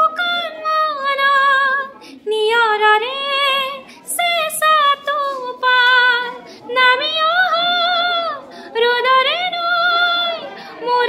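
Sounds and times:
woman singing unaccompanied: 0:00.0 - 0:11.0
singer breathing: 0:02.0 - 0:02.3, 0:03.8 - 0:04.1, 0:06.4 - 0:06.7, 0:08.4 - 0:08.8, 0:10.5 - 0:10.8.

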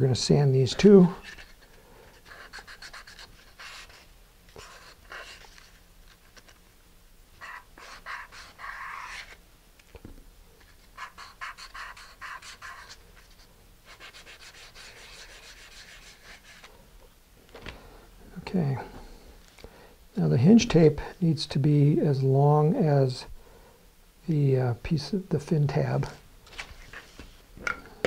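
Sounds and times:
sandpaper rasping on wood: 0:13.9 - 0:16.7.

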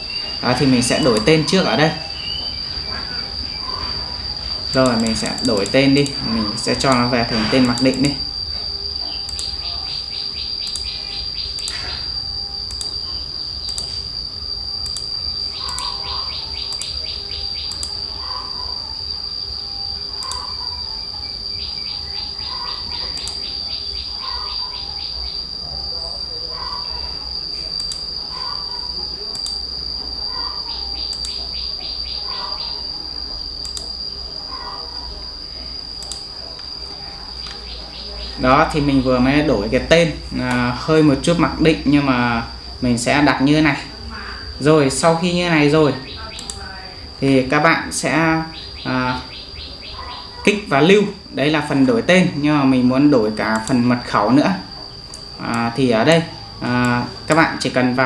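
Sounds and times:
insect trills: 0:00.0 - 0:58.0
insects droning: 0:00.0 - 0:58.0
soft short insect chirps: 0:00.0 - 0:58.0.

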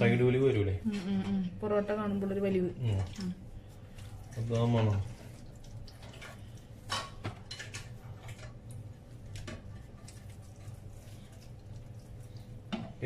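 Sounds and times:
dough handling noises: 0:02.8 - 0:13.0.

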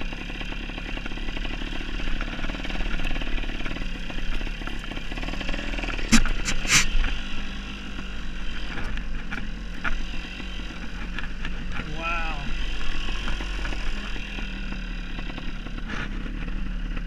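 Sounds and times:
dirt bike engine running: 0:00.0 - 0:17.0.

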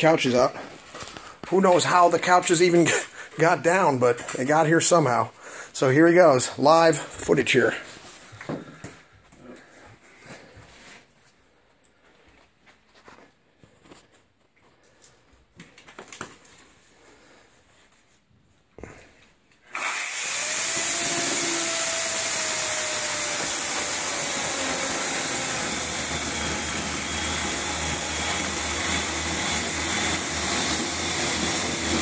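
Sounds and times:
faint handling sounds: 0:07.8 - 0:19.6
chainsaw cutting couch: 0:19.7 - 0:32.0.

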